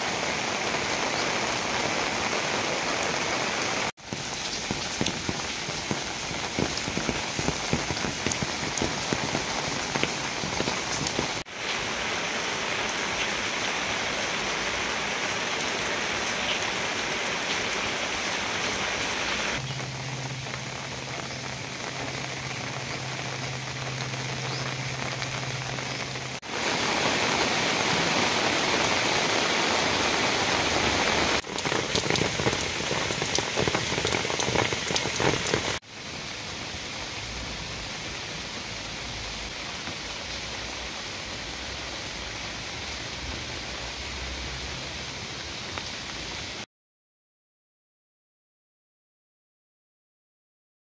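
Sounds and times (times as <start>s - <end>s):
rain falling on pond and foliage: 0.0s - 46.7s
close water drips: 31.4s - 35.8s.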